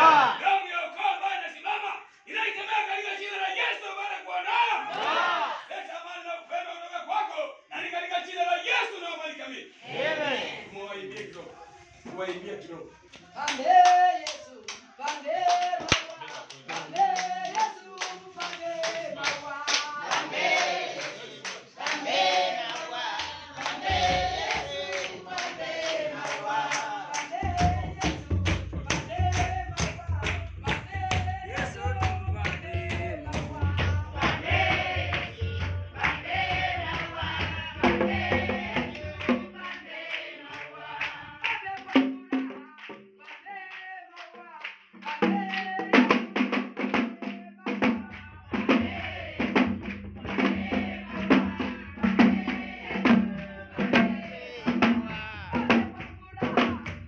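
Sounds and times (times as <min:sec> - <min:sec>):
congregation singing: 0:00.0 - 0:00.6, 0:04.5 - 0:05.8, 0:09.8 - 0:11.2, 0:13.3 - 0:44.4, 0:48.1 - 0:57.0
brisk hand clapping: 0:13.1 - 0:37.6, 0:38.8 - 0:45.8.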